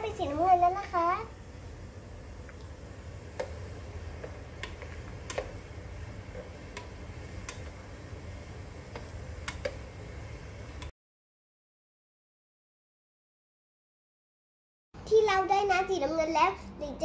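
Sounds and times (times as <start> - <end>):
plastic paddle tapping a pot: 3.3 - 5.6, 6.3 - 7.8, 8.9 - 9.9.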